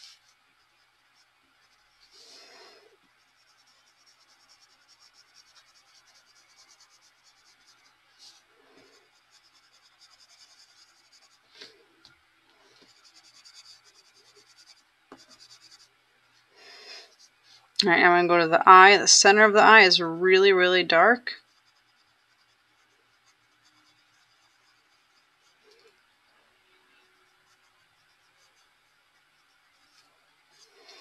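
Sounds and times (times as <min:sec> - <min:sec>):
pencil scratching on paper: 0:00.0 - 0:11.7, 0:12.7 - 0:17.4, 0:21.3 - 0:25.9, 0:26.8 - 0:31.0.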